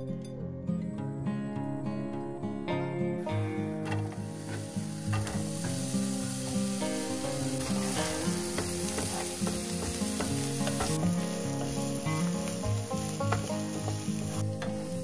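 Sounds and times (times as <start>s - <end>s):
soft guitar music: 0.0s - 15.0s
food sizzling in a pan: 3.2s - 15.0s.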